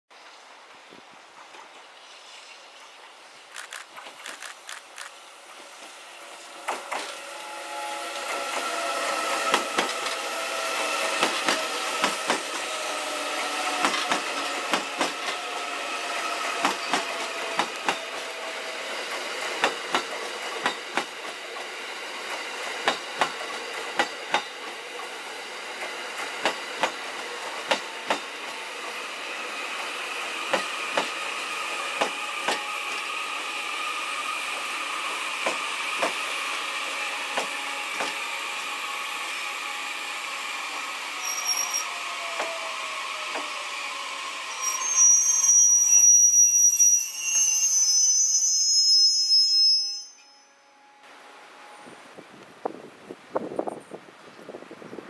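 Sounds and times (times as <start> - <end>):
train wheels clicking on rail joints: 1.3 - 2.9, 3.5 - 33.4, 34.1 - 38.8, 40.7 - 45.6
train motor whine: 3.5 - 50.2.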